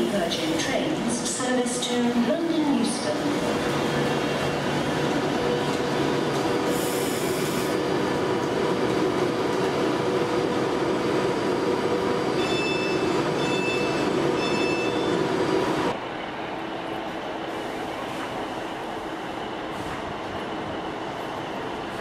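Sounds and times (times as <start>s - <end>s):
train equipment humming: 0.0s - 22.0s
short high beeps: 12.4s - 15.1s.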